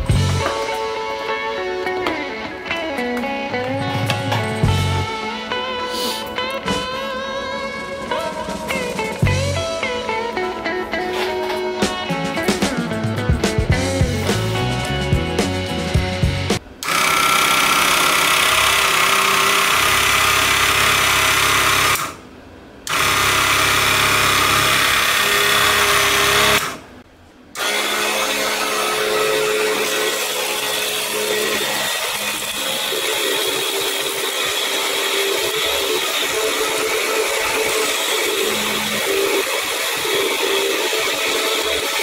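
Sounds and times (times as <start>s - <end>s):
jigsaw cutting thin wood: 16.8s - 22.2s, 22.9s - 26.8s, 27.6s - 42.0s
small jigsaw motor running: 16.8s - 22.2s, 22.9s - 26.8s, 27.6s - 42.0s.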